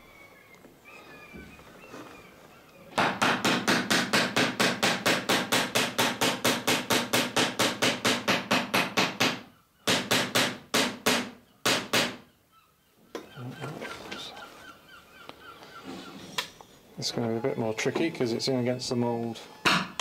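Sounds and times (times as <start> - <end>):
hammer riveting copper nails: 3.0 - 12.2.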